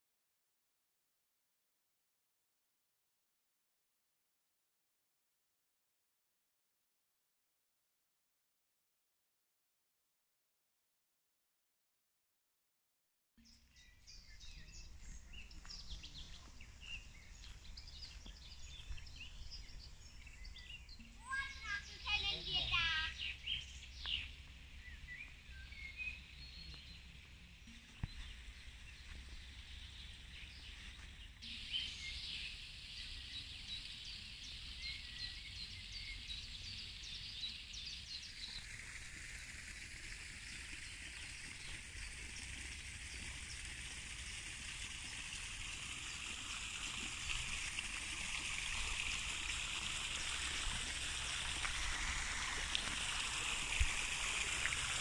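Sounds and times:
small birds chirping: 13.4s - 38.7s
running water rushing: 14.2s - 55.0s.

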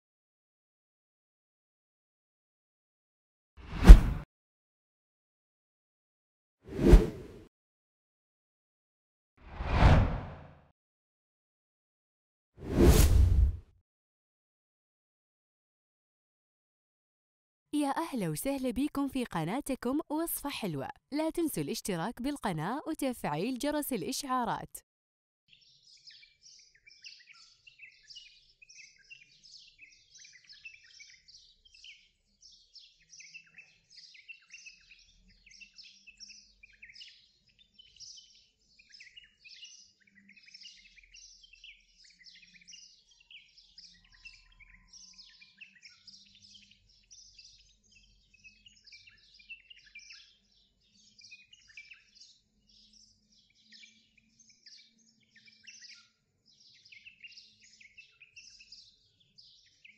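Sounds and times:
small birds chirping: 25.5s - 59.9s.

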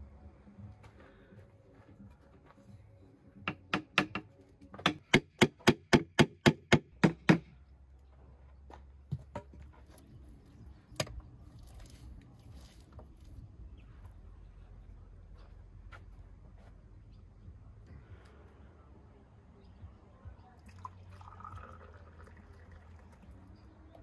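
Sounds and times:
sharp knocks on masonry: 3.4s - 7.5s.

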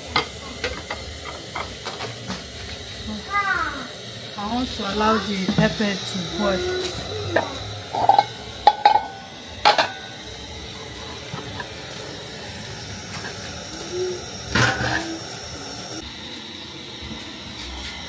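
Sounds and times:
bowls knocking and clinking: 7.9s - 10.0s.

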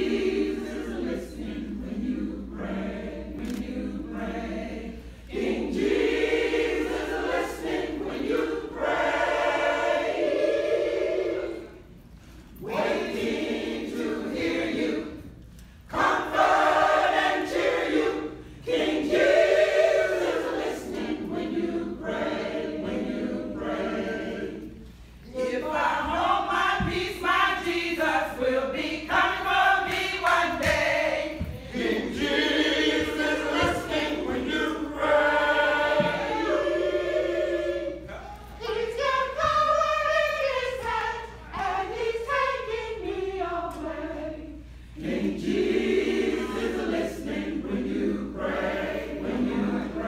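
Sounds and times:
church choir singing: 0.0s - 50.0s.

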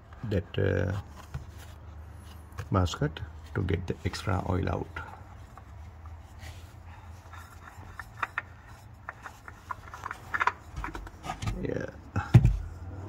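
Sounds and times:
oil filter clicking and rubbing: 3.4s - 11.6s.

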